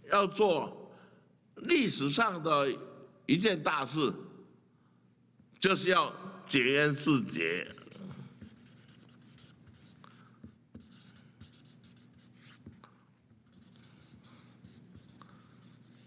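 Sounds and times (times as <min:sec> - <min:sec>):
marker pen scratching on paper: 0:07.6 - 0:16.0.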